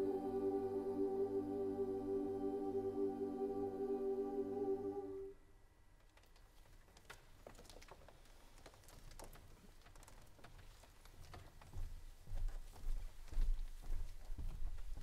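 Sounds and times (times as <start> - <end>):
choir holding a chord: 0.0 - 5.4
clicks and rustles of performers: 6.0 - 15.0.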